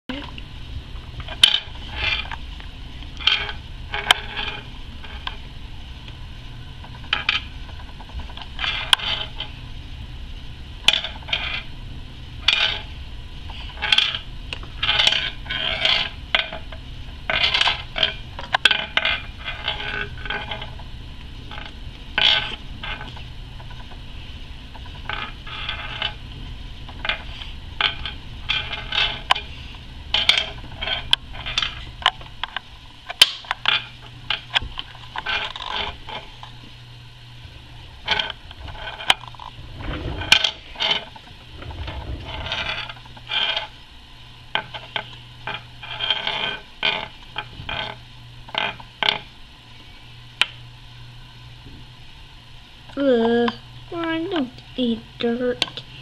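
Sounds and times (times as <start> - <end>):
low steady hum: 0.1 - 56.0
hard object scraping and tapping glass: 14.8 - 20.8, 26.9 - 29.5, 30.1 - 32.6.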